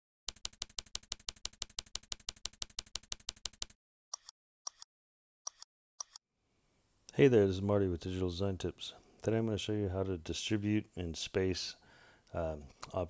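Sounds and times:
keyboard typing clicks: 0:00.3 - 0:04.9.

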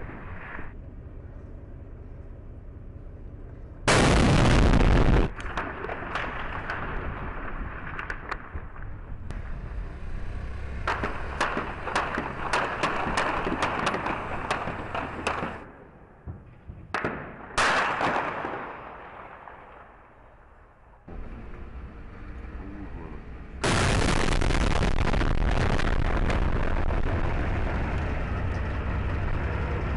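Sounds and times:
loud blast: 0:03.9 - 0:07.9, 0:23.6 - 0:27.6
gunshots cracking: 0:03.9 - 0:08.9, 0:10.8 - 0:15.7, 0:16.9 - 0:20.1.

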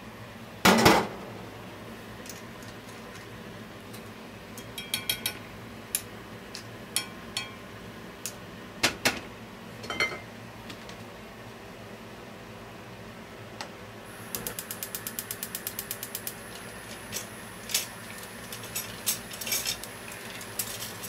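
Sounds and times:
clam shells clinking in a pan: 0:17.1 - 0:21.0.

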